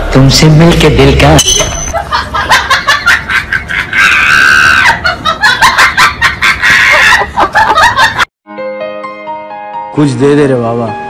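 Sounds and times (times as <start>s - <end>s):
person screaming and laughing: 3.6s - 7.5s.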